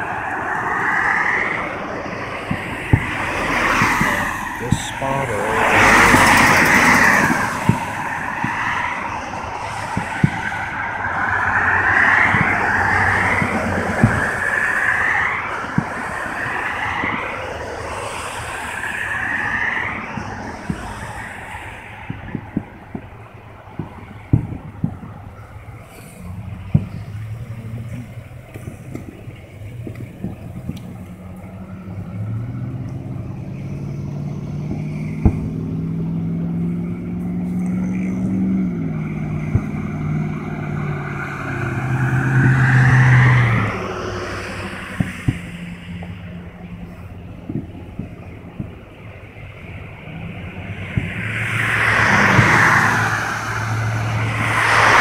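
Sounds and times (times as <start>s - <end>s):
cars passing close by: 0.0s - 55.0s
distant fireworks thuds: 0.0s - 55.0s
low engine hum: 0.0s - 55.0s
distant firework boom: 2.4s - 5.0s, 22.0s - 33.8s, 34.4s - 36.7s.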